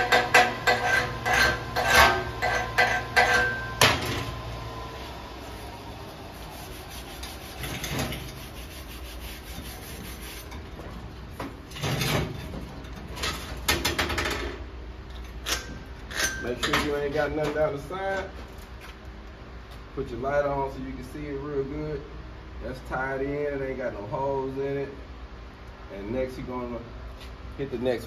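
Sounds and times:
hammer scraping metal plate: 0.0 - 4.1
hammer striking metal plate: 0.0 - 4.2.

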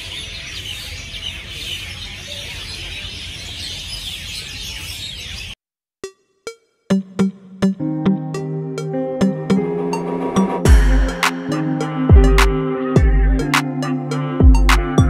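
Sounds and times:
small birds chirping: 0.0 - 5.6
short musical notes: 6.9 - 14.1.

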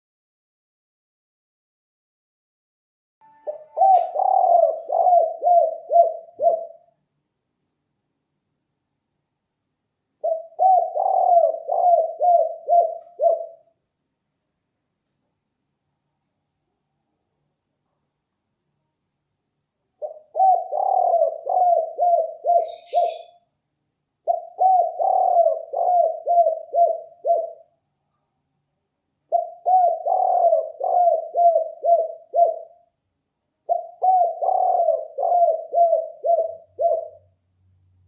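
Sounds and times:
dove cooing: 3.4 - 6.9, 10.2 - 13.7, 20.0 - 23.4, 24.2 - 27.7, 29.3 - 32.8, 33.6 - 37.3.

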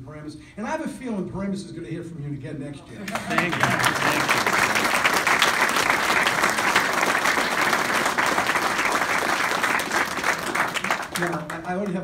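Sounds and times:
crowd applauding: 3.1 - 12.0.

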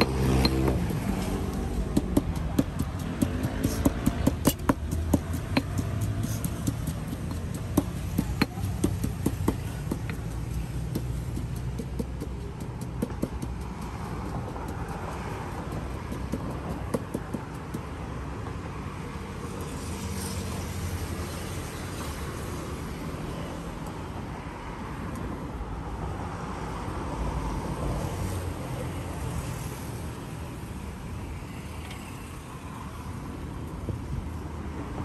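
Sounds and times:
sharp clicks and knocks: 0.0 - 17.9
street low rumble: 0.0 - 35.0.

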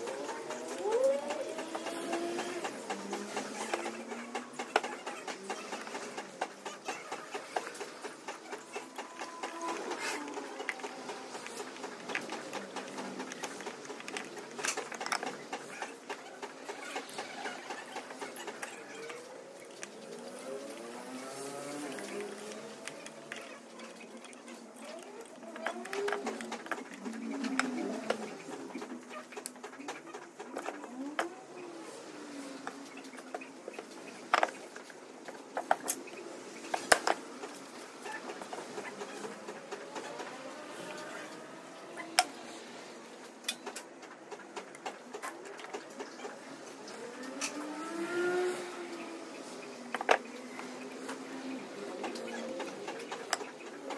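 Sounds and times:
metal parts clicking and scraping: 0.0 - 31.2.

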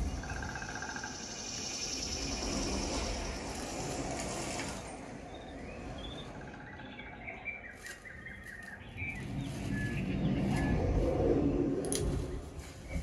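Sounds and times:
bird chirps and twitters: 0.0 - 4.0, 5.2 - 11.5
rustling hiss: 0.0 - 5.2
low rumble: 9.0 - 13.0.

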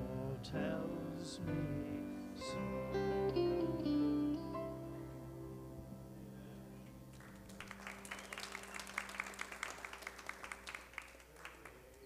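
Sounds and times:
guitar chord: 0.0 - 7.1
congregation applauding: 7.1 - 12.0.

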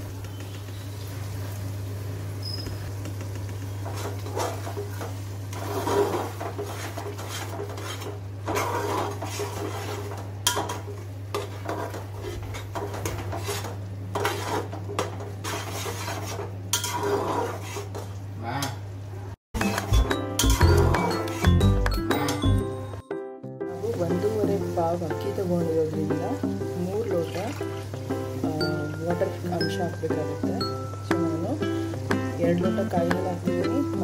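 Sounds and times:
ladle scraping metal pot: 3.8 - 18.2, 19.6 - 21.7.

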